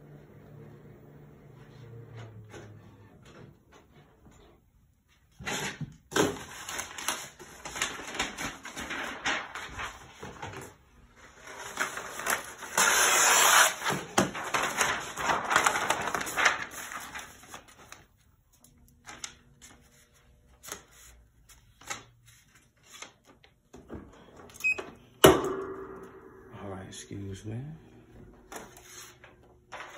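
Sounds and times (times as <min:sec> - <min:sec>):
paper crinkling and rustling: 0:05.5 - 0:23.6, 0:28.5 - 0:29.9.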